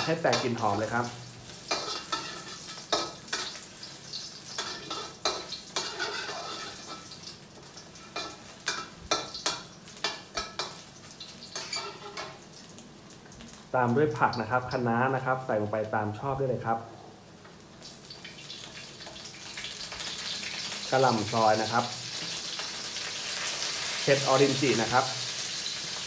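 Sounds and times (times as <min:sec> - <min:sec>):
mushrooms sizzling in oil: 0:00.0 - 0:16.2, 0:17.2 - 0:26.0
metal spatula scraping wok: 0:01.6 - 0:03.6, 0:04.2 - 0:07.2, 0:11.5 - 0:12.4.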